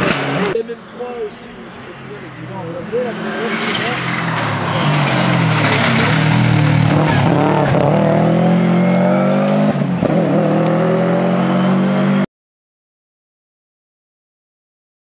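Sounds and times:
rally car engine running hard: 4.2 - 11.9.

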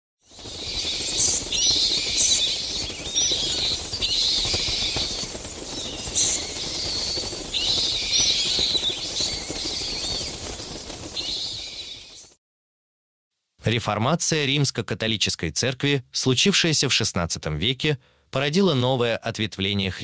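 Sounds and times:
wings flapping: 0.2 - 12.4
bats squeaking: 0.3 - 12.4.

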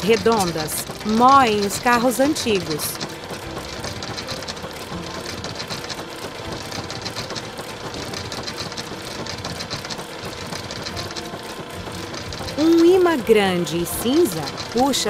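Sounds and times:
cartoon car shredder grinding: 0.0 - 15.0.

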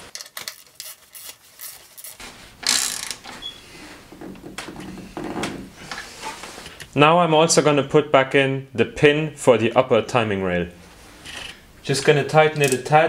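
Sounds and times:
ratchet wrench clicking: 2.6 - 3.2.

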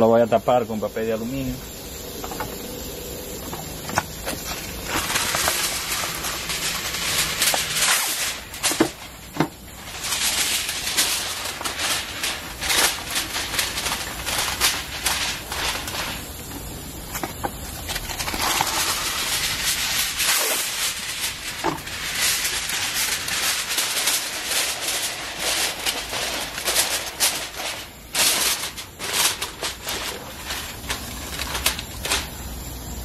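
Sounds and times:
aluminium foil crinkling: 0.8 - 32.6.

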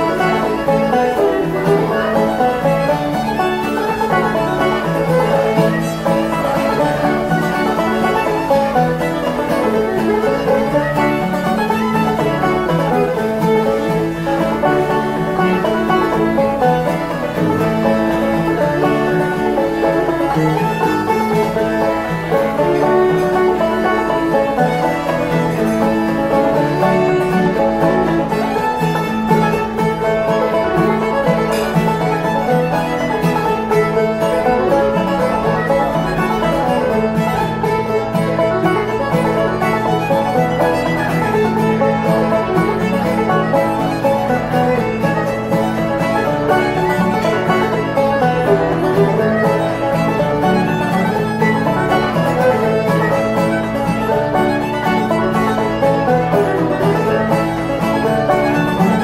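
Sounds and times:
acoustic guitar: 0.0 - 59.0
banjo: 0.0 - 59.0
fiddle: 0.0 - 59.0.

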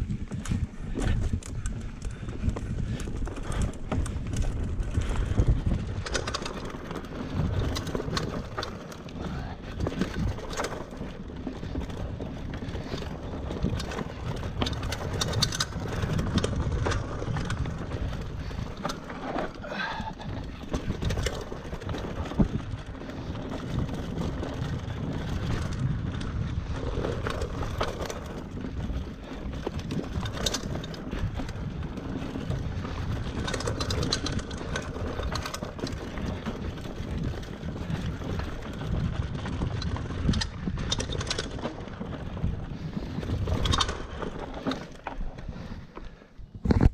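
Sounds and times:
wind on microphone: 0.0 - 6.4
bike chain and frame rattling: 0.0 - 46.6
bike tyres rolling on dirt: 0.0 - 46.9.

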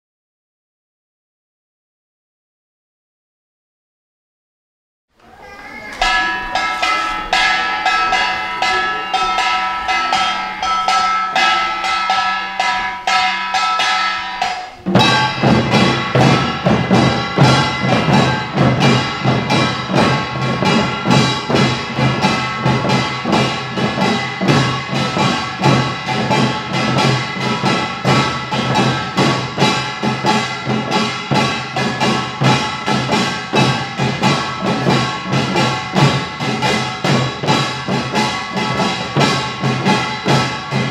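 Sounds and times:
small gongs clattering: 5.6 - 40.9
ringing gong tones: 5.9 - 37.0
drums with fast driving beat: 6.0 - 40.9.

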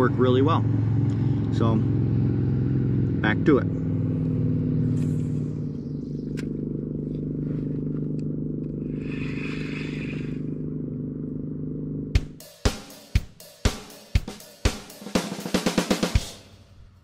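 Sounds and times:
motorboat engine humming: 0.0 - 12.4
drum beat: 12.2 - 16.6.

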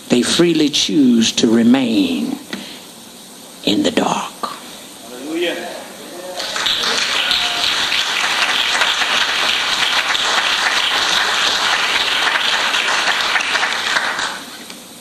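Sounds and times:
crowd clapping: 6.2 - 14.6.

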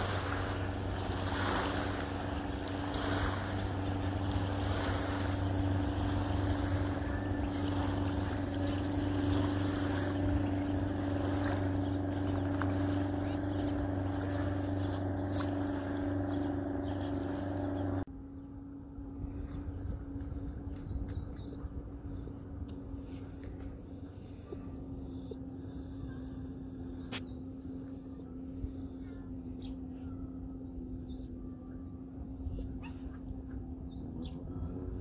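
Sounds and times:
water noise: 0.0 - 18.1
boat engine droning: 0.0 - 35.0
wind: 0.0 - 35.0.

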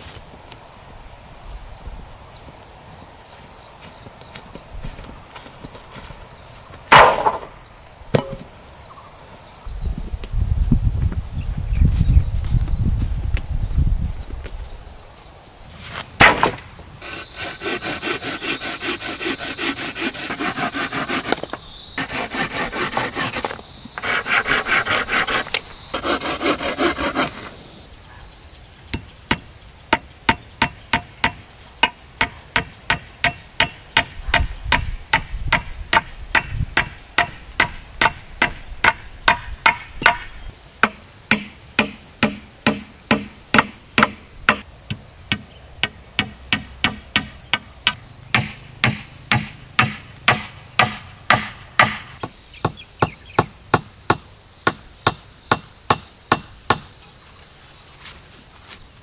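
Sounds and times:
thump: 6.9 - 7.5
hand saw cutting wood: 17.0 - 27.6
hammering nail into wood: 46.2 - 56.8.

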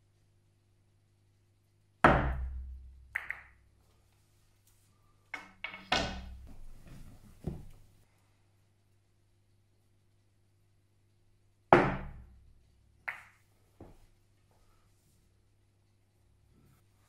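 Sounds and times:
cue ball hitting cushion: 2.1 - 3.5, 5.4 - 7.8, 13.1 - 14.0
billiard balls clicking: 2.4 - 3.7, 5.3 - 6.7, 13.0 - 14.0.

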